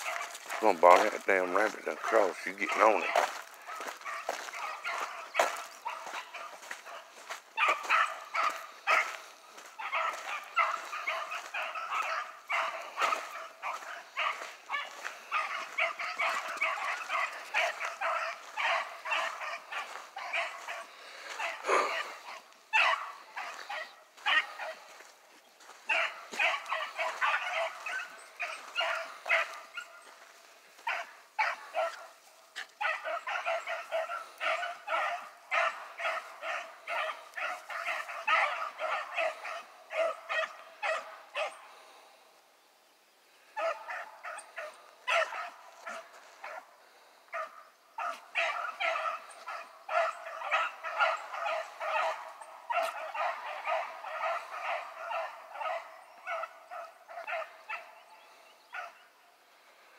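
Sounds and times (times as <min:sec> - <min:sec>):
hounds barking: 0:00.0 - 0:42.3, 0:43.3 - 0:59.9.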